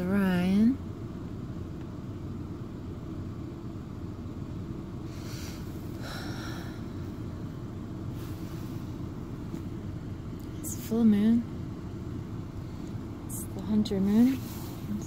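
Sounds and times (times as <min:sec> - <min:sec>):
low background rumble: 0:00.0 - 0:15.0
soft hisses: 0:13.6 - 0:15.0.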